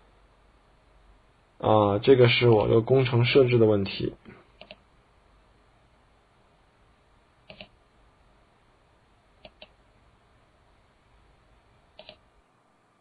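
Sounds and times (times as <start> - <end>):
low steady hiss: 0.0 - 13.0
mouse button clicking: 7.5 - 7.7.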